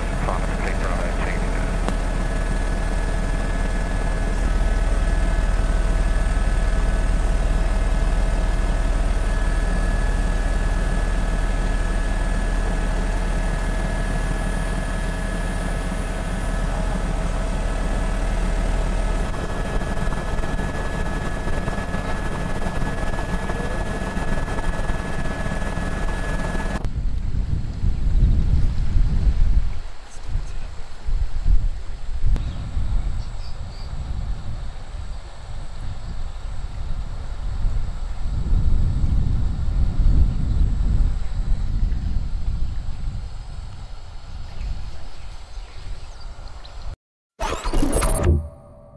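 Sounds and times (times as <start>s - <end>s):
helicopter running: 0.0s - 26.9s, 47.4s - 48.9s.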